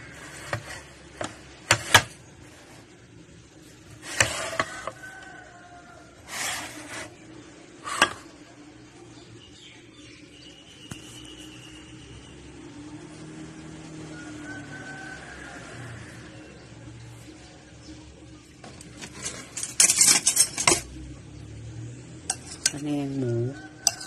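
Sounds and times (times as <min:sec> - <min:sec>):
scraping rustle: 0:03.9 - 0:05.4, 0:06.2 - 0:07.2, 0:18.6 - 0:20.9.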